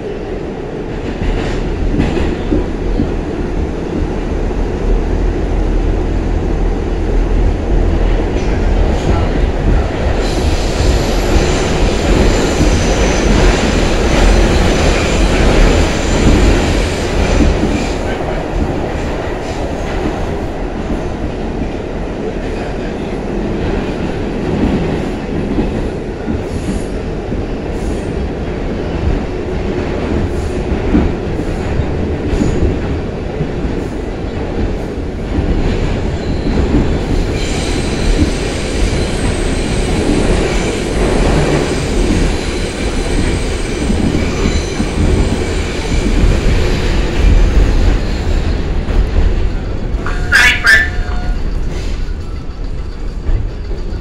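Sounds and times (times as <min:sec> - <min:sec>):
train wheels rumbling on rail: 0:00.0 - 0:54.0
high wheel squeal: 0:50.1 - 0:52.5.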